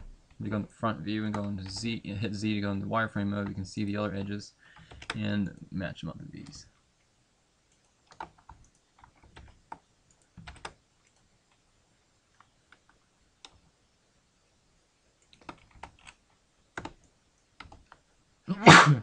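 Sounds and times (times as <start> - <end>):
keyboard and mouse clicks: 4.2 - 5.2, 7.7 - 11.6, 12.3 - 13.6, 15.2 - 16.2, 16.8 - 18.0.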